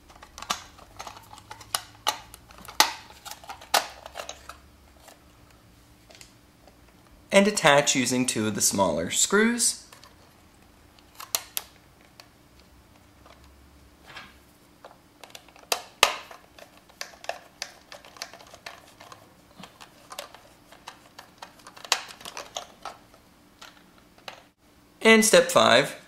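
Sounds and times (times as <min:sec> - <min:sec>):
plastic toy clicking and tapping: 0:15.2 - 0:24.5.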